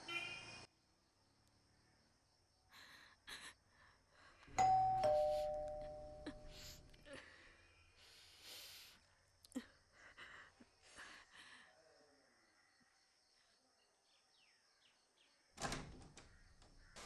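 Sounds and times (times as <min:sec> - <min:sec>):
two-tone doorbell chime: 0:04.6 - 0:06.7.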